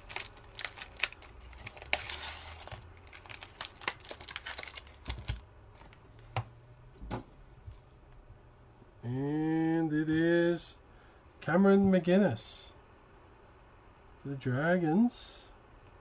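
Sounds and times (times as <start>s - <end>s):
foil pack crinkling and tearing: 0.0s - 6.0s
cards riffled and clicked: 0.0s - 6.3s.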